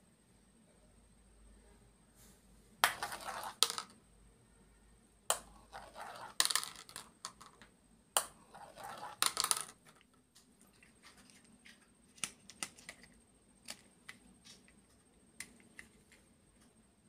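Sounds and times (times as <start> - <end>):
marbles rattling down plastic track: 2.8 - 3.9, 5.6 - 7.6, 8.5 - 10.1
marbles clattering into plastic basket: 2.8 - 4.0, 5.3 - 11.4.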